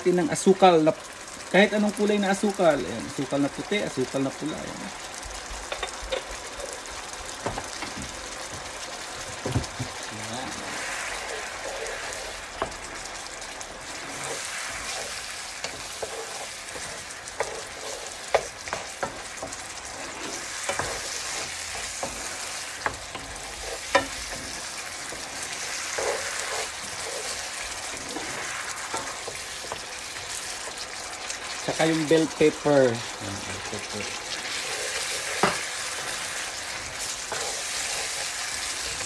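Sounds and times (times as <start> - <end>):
sauce sizzling in a frying pan: 0.0 - 39.0
spatula scraping a pan: 10.5 - 39.0.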